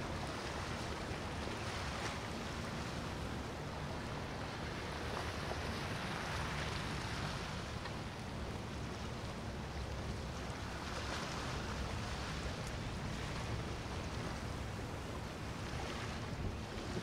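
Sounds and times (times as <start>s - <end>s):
water and waves: 0.0s - 17.0s
wind buffeting microphone: 11.8s - 17.0s.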